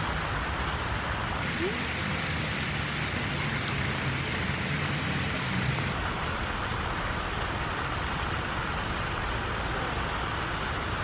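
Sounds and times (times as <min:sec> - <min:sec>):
wind on microphone: 0:01.4 - 0:06.0
distant traffic: 0:01.4 - 0:11.0.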